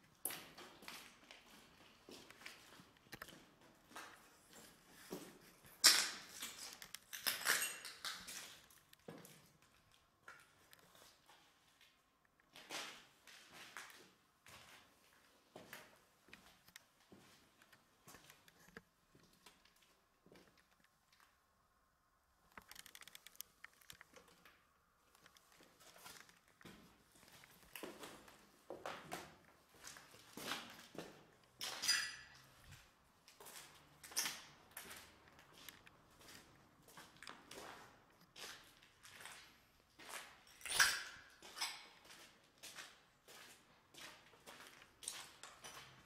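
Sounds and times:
small ticks: 22.5s - 24.2s.

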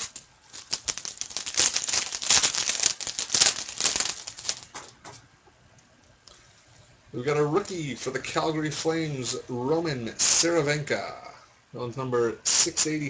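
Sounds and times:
wrapper tearing and crinkling: 0.0s - 4.8s.

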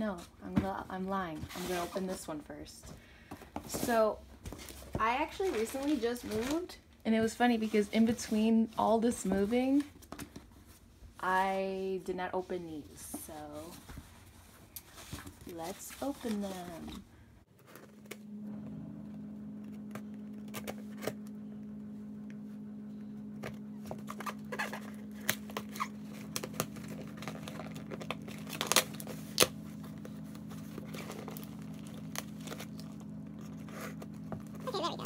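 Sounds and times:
steady low hum: 0.0s - 35.0s
cardboard scraping: 13.4s - 21.4s, 23.3s - 35.0s
packing tape tearing: 23.9s - 35.0s.

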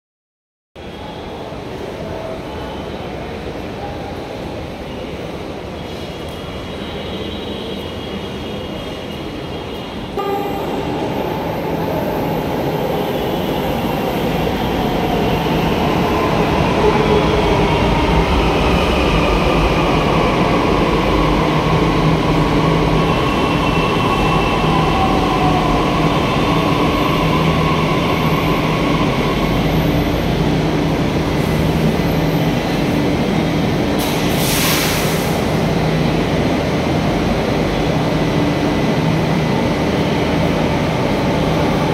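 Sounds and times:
train braking to a stop: 4.6s - 36.3s.

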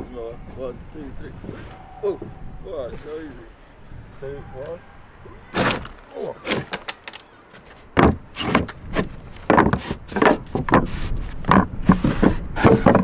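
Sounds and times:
footsteps on wooden boards: 5.6s - 13.0s.

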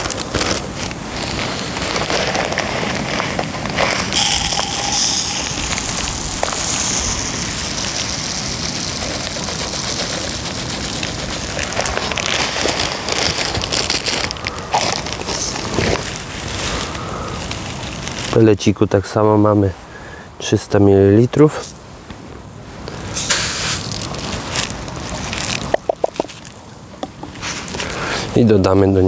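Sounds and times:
small hard pellets pouring: 4.2s - 15.6s.

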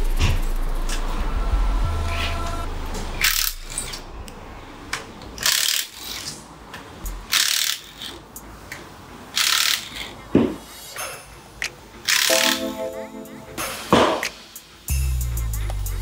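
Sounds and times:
air impact wrench bursts: 7.1s - 8.2s.

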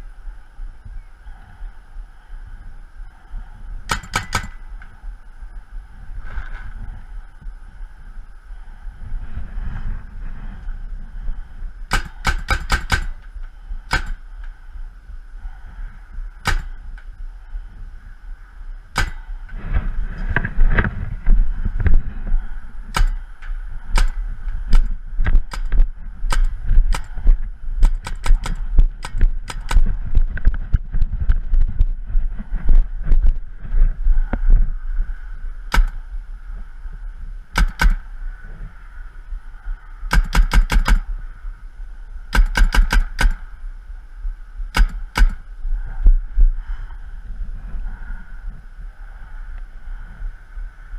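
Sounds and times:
low rumble: 0.0s - 50.9s
paintball markers firing: 3.9s - 4.6s, 11.9s - 13.2s, 13.9s - 14.2s, 16.4s - 16.8s, 19.0s - 19.3s, 22.9s - 23.2s, 24.0s - 27.1s, 27.8s - 29.9s, 37.6s - 38.0s, 40.1s - 41.1s, 42.4s - 43.4s, 44.8s - 45.4s.

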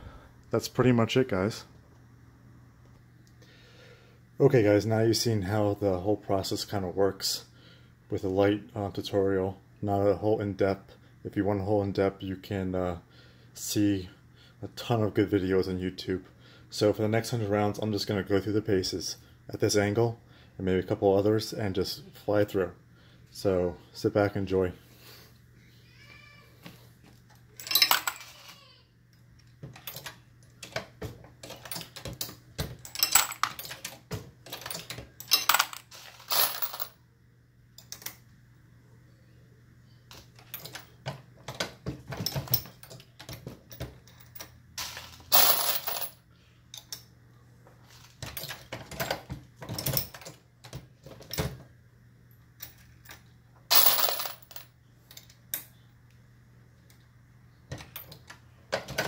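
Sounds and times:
brass cases clinking: 27.6s - 28.3s, 32.8s - 33.9s, 34.5s - 36.9s, 44.1s - 46.2s, 53.7s - 54.6s.

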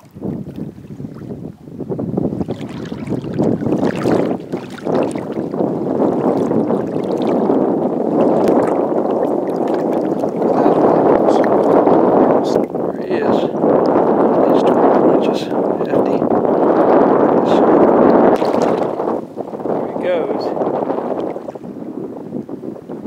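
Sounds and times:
wind on microphone: 0.0s - 23.0s
fish splashing at surface: 2.4s - 5.4s, 18.3s - 19.2s.

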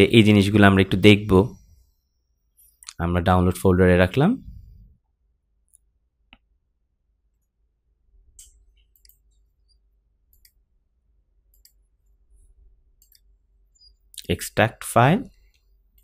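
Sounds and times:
faint computer mouse clicks: 8.4s - 10.6s, 11.5s - 11.8s, 13.0s - 14.0s.

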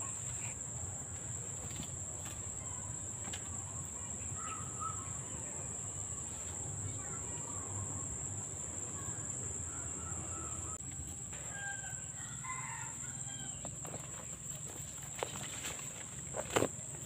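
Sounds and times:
rooster crowing: 9.5s - 13.8s.

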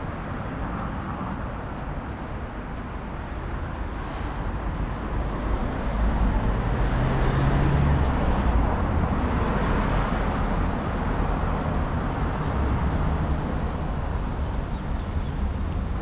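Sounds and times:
road noise: 0.0s - 16.0s
vehicle passing: 4.0s - 14.3s.

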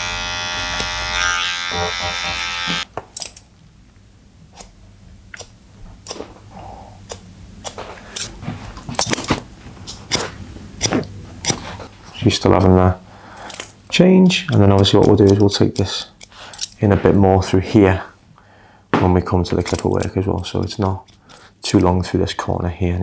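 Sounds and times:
hair trimmer buzzing: 0.0s - 2.9s.

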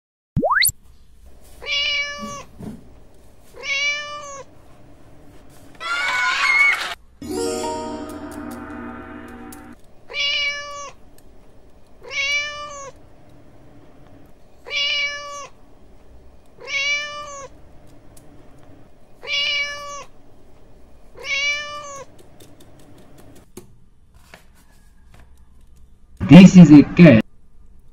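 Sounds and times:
cat meowing: 1.6s - 2.5s, 3.6s - 4.5s, 10.1s - 11.0s, 12.0s - 13.0s, 14.6s - 15.6s, 16.6s - 17.5s, 19.2s - 20.1s, 21.2s - 22.1s.

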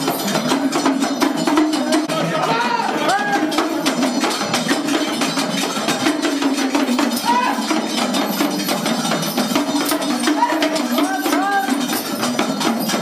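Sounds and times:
fast percussion strokes: 0.0s - 13.0s.

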